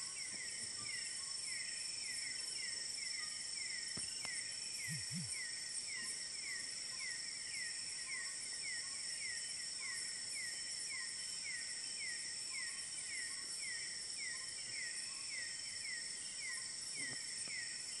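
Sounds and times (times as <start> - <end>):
insects buzzing drone: 0.0 - 18.0.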